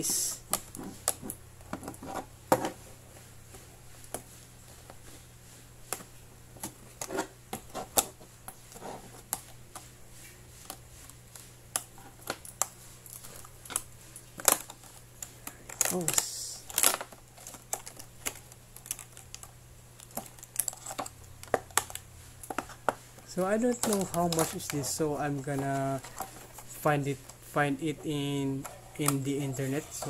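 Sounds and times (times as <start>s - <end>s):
plastic packaging clicking and crackling: 11.7s - 30.0s.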